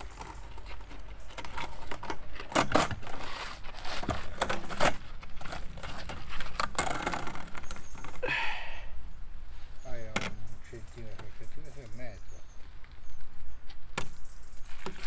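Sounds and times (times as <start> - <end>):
concrete block scraping and knocking: 0.0 - 8.2.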